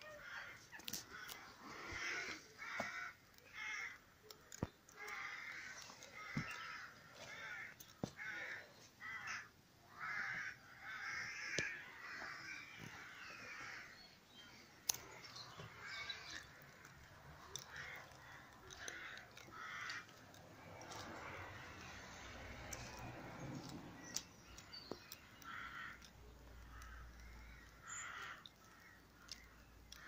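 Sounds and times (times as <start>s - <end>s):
crows cawing: 0.0s - 30.0s
sharp clicks: 14.8s - 30.0s.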